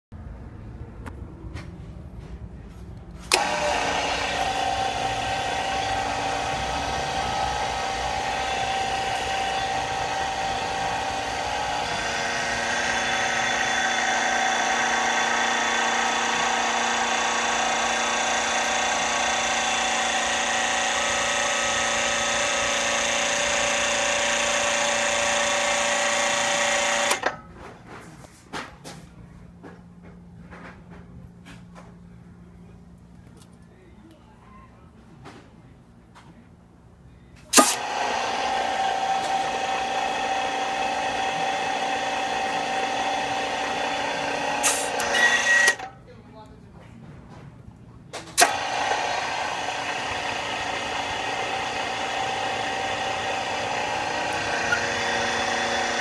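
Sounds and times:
hydraulic pump humming and whining: 2.9s - 28.1s, 37.4s - 46.6s, 47.3s - 56.0s.

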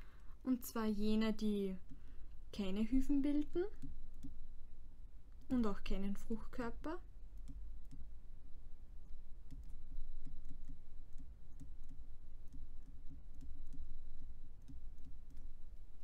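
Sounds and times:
faint high whine: 0.0s - 16.0s
low hum: 0.0s - 16.0s
stylus tapping on tablet: 9.4s - 14.0s, 14.6s - 15.6s.

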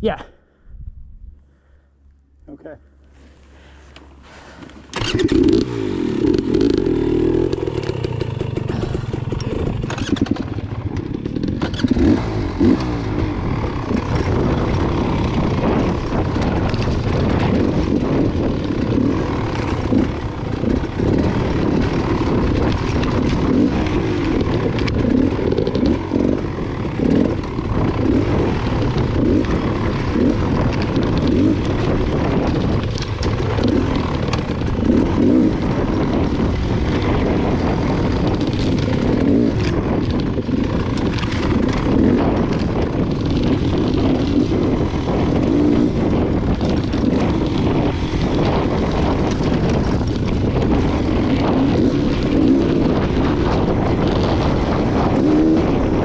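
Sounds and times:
dirt bike engine revving: 4.3s - 56.0s.

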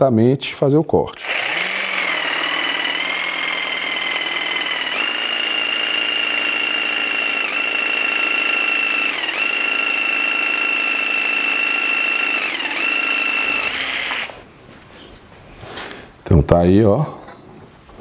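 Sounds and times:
jigsaw cutting wood: 1.1s - 14.4s.

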